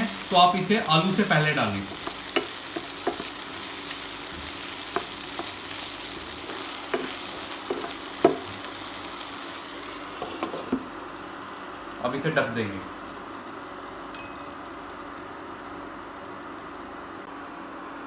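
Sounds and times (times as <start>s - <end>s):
food sizzling in hot oil: 0.0s - 17.3s
spatula clacking against pan: 6.9s - 8.5s.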